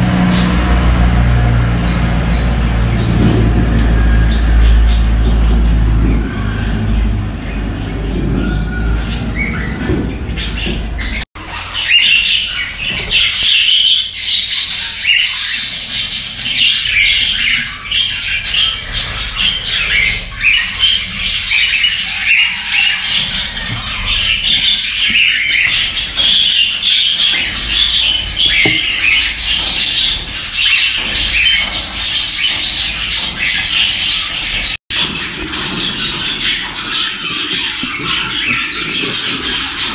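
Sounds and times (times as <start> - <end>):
low rumble: 0.0 - 11.2
bird chicks calling: 0.0 - 39.9.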